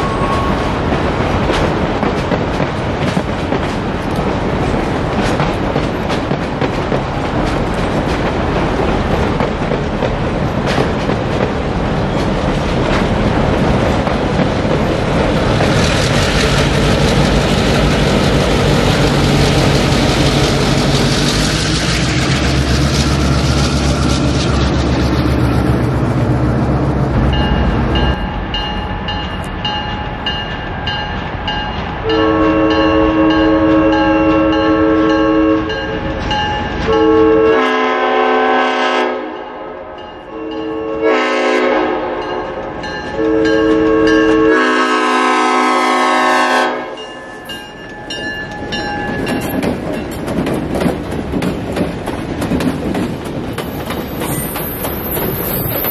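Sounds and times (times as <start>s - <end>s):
crossing bell ringing: 0.0s - 0.8s, 27.2s - 37.4s, 39.3s - 41.2s, 42.1s - 44.6s, 46.8s - 50.3s
train wheels rumbling on rails: 0.0s - 55.9s
vehicle engine rumbling: 14.6s - 30.2s
locomotive horn blasts: 32.0s - 36.0s, 36.9s - 42.6s, 43.2s - 47.0s.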